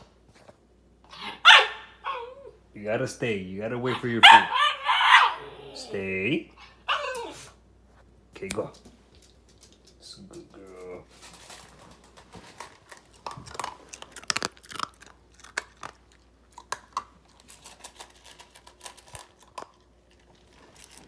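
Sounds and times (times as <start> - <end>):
puppy crunching food: 8.4 - 21.0.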